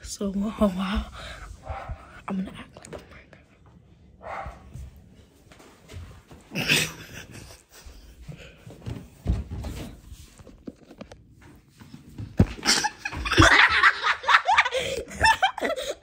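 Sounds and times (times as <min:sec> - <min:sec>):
people laughing: 0:12.6 - 0:16.0.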